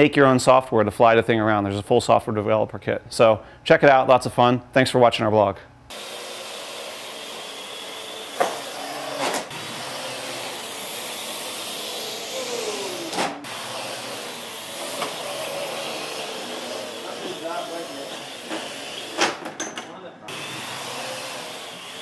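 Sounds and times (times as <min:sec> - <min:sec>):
quadcopter rotors whirring: 0:05.9 - 0:19.2, 0:20.3 - 0:22.0.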